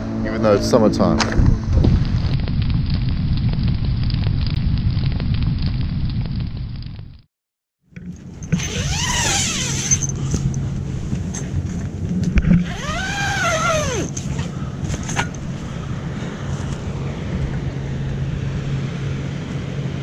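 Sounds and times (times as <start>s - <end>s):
steady low rumble: 0.0s - 7.3s, 8.0s - 20.0s
tent zipper pulled open: 8.5s - 10.4s, 12.5s - 14.4s.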